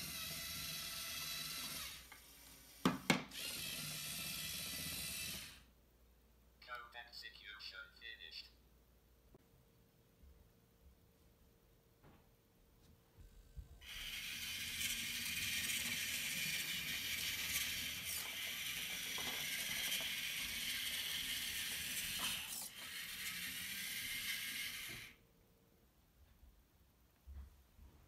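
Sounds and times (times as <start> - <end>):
robot motors whirring: 0.0 - 5.6, 13.8 - 25.2.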